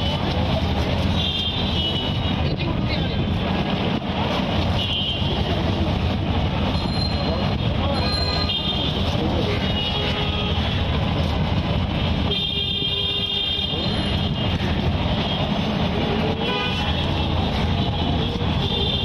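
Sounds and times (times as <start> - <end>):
passing vehicles rumbling: 0.0 - 19.0.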